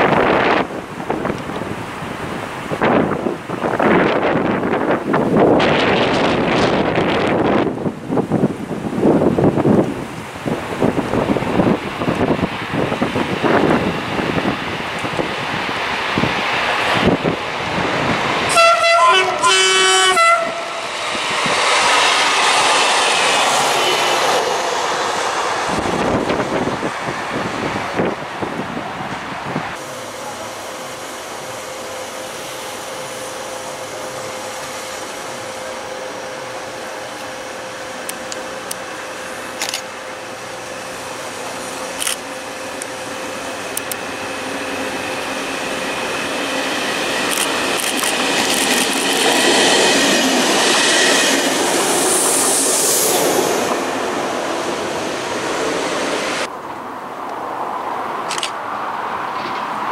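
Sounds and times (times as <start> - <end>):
electric train approaching: 0.0 - 59.9
train running past: 0.0 - 59.9
train horn blasts: 18.5 - 20.9.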